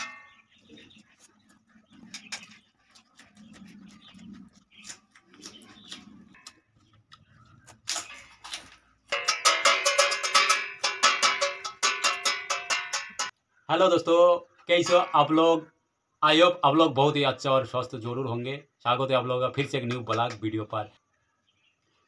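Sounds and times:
man chewing food: 0:00.6 - 0:09.1.

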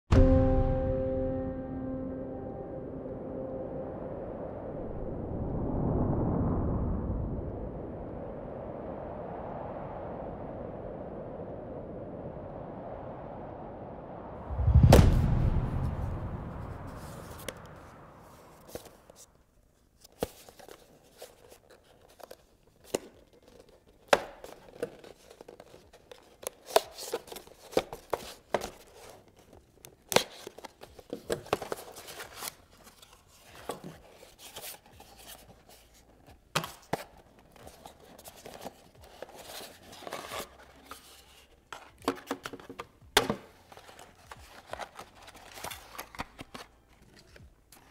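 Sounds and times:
deep boom: 0:14.3 - 0:18.3
plastic wrapping rustling: 0:20.0 - 0:47.9
cardboard box being opened: 0:20.1 - 0:47.9.

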